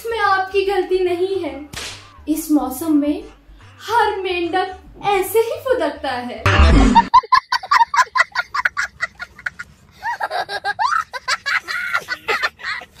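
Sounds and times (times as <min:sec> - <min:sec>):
child laughing excitedly: 0:07.2 - 0:13.0.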